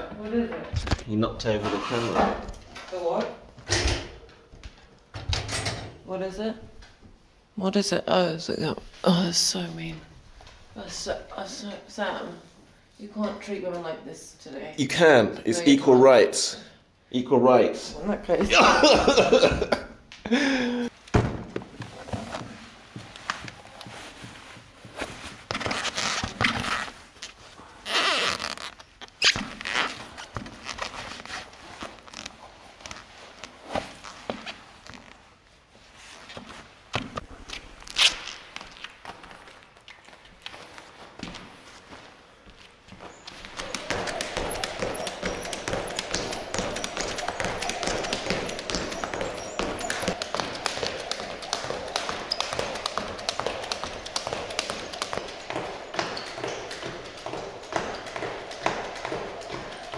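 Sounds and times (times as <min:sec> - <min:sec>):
shoelaces rustling and clicking: 0:36.2 - 0:59.9
shoes knocking on wooden floor: 0:43.0 - 0:59.9.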